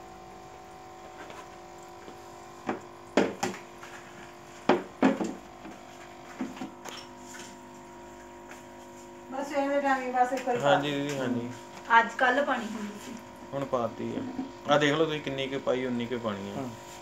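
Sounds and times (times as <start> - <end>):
electrical hum: 0.0 - 17.0.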